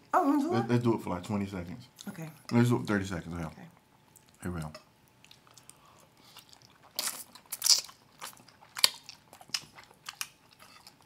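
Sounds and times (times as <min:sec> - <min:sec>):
people chewing pasta: 0:04.1 - 0:11.0.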